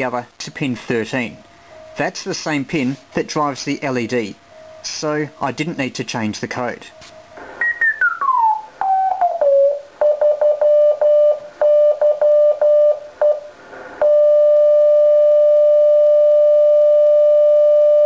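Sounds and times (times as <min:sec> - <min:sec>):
morse code tone: 0:07.2 - 0:18.0.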